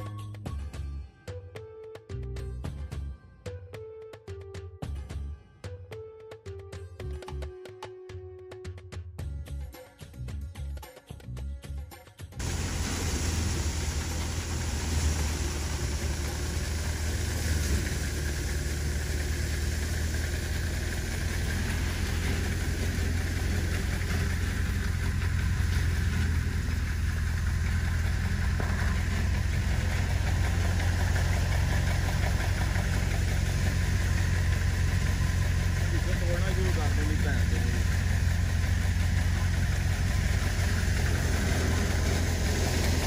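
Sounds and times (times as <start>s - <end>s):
thresher machine humming: 12.4s - 43.0s.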